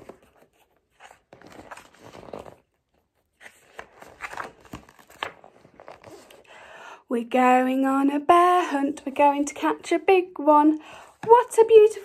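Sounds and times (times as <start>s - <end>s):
book pages turning: 0.0s - 6.5s.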